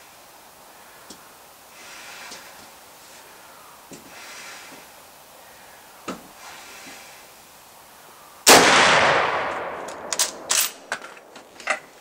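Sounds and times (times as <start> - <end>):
rifle shot with echo: 8.5 - 10.8.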